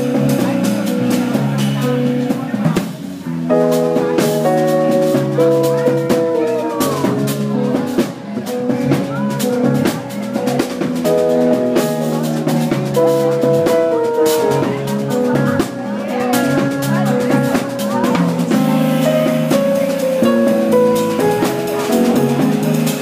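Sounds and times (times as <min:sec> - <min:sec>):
drum kit with cymbals and snare: 0:00.0 - 0:23.0
electric bass: 0:00.0 - 0:23.0
electric keyboard chords: 0:00.0 - 0:23.0.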